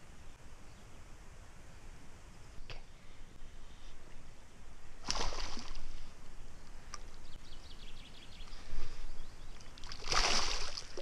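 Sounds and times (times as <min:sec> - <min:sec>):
fish splash at water surface: 0:05.0 - 0:05.8, 0:09.8 - 0:10.9.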